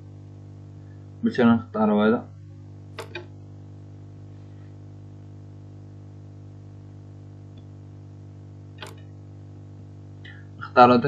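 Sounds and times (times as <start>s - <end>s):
low electrical hum: 0.0s - 11.0s
computer mouse click: 3.0s - 3.3s, 8.8s - 9.1s.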